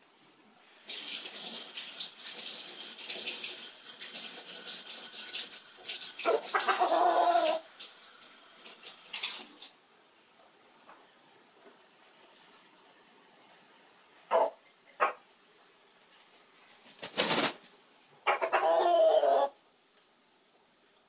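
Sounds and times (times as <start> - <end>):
rooster crowing: 6.3 - 7.6, 18.3 - 19.6.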